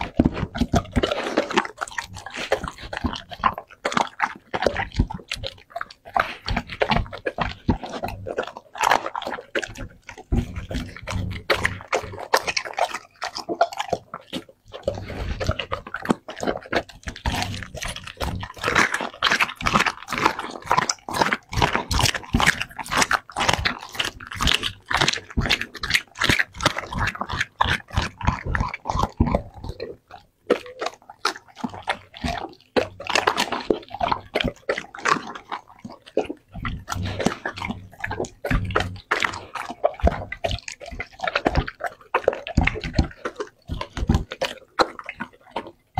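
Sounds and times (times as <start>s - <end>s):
dog chewing and crunching food: 0.0s - 45.9s.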